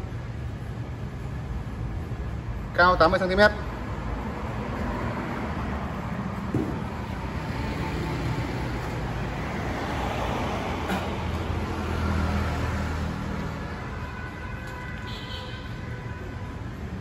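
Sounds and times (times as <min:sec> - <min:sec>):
road traffic noise: 0:00.0 - 0:17.0
vehicle engine low hum: 0:03.6 - 0:14.8.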